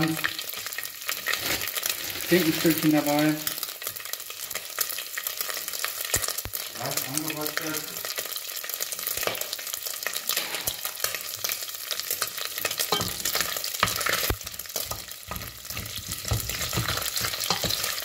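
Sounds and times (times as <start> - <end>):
meat sizzling in oil: 0.0 - 18.0
wooden spoon stirring in pot: 12.6 - 18.0.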